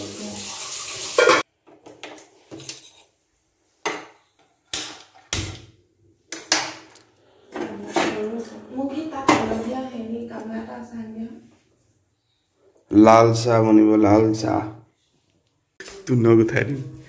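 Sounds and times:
running tap water: 0.0s - 1.5s.

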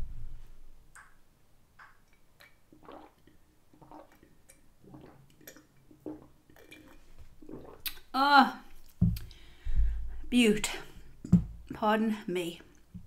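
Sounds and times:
person gulping a drink: 1.8s - 8.1s.

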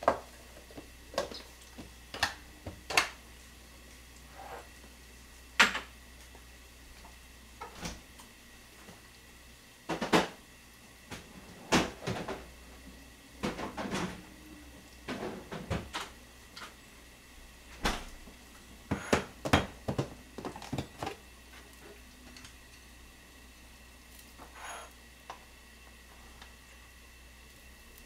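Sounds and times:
kitchen containers knocking and clacking: 18.9s - 21.2s.

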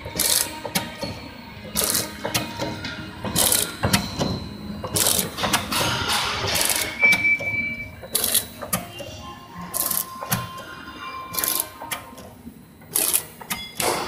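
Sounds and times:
packing machine clatter: 0.0s - 10.7s, 11.3s - 14.0s
sharp bursts of machine noise: 0.0s - 14.0s
brief high tone: 8.8s - 12.2s.

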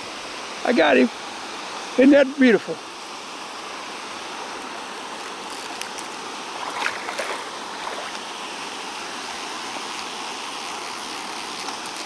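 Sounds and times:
river water over waterfalls: 0.0s - 12.0s
sharp splashes and clicks: 5.5s - 8.3s.

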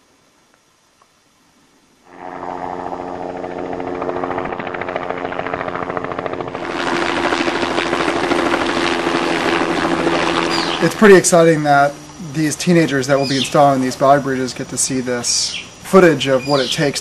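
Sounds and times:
helicopter engine tone: 2.1s - 17.0s
helicopter rotor beat: 2.1s - 17.0s.

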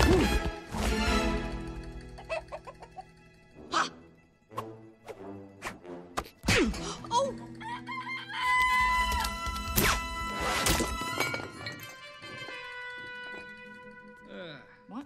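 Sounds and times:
orchestral music: 0.0s - 8.1s.

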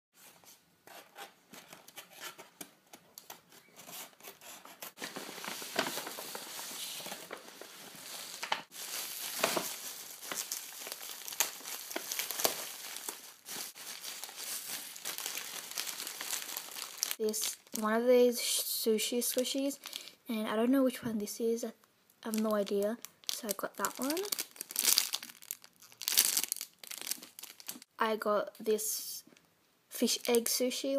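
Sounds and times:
cellophane rustling: 4.9s - 17.8s, 19.2s - 20.1s, 22.3s - 27.9s
plastic mailer crinkling: 5.0s - 17.8s, 22.3s - 27.9s.

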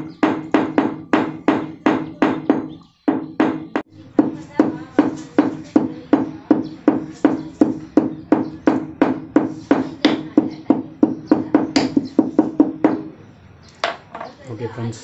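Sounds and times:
hammer knocking on wooden handle: 0.0s - 13.1s.

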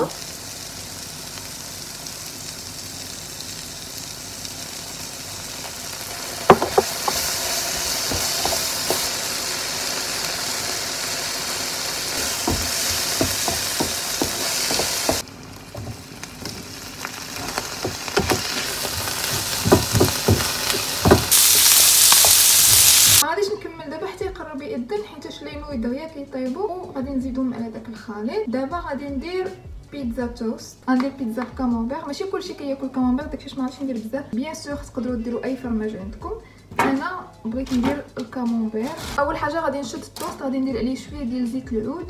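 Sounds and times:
vegetables sizzling in a pan: 0.0s - 23.2s
utensil knocking against pan: 6.4s - 7.3s, 8.0s - 9.1s, 12.2s - 15.2s, 19.3s - 21.3s.

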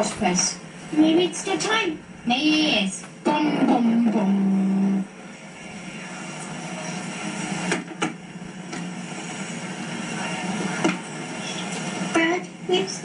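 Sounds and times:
tape playback hiss: 0.0s - 13.0s.

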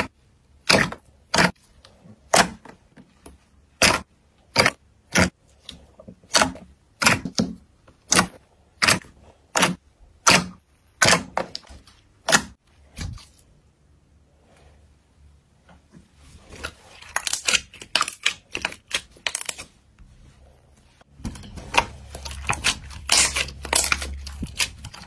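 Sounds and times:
slime popping and crackling: 17.0s - 19.6s, 21.3s - 25.0s.

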